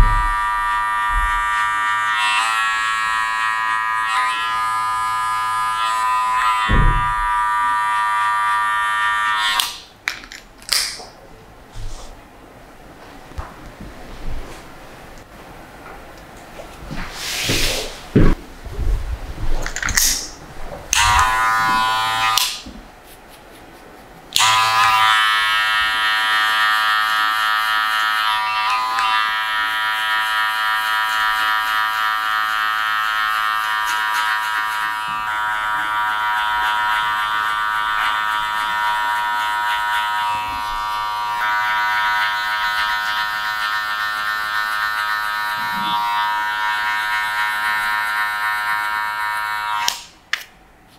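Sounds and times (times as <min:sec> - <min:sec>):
electric hair clippers running: 0:00.0 - 0:09.9, 0:20.9 - 0:22.6, 0:24.4 - 0:50.1.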